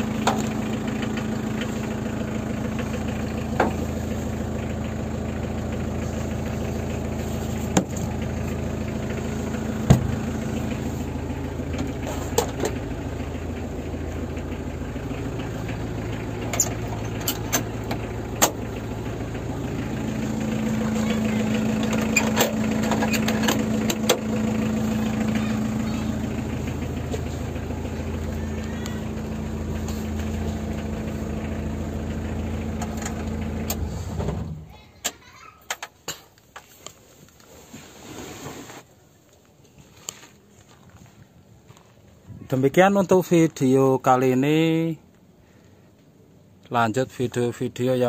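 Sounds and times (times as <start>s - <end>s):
diesel engine idling: 0.0s - 48.0s.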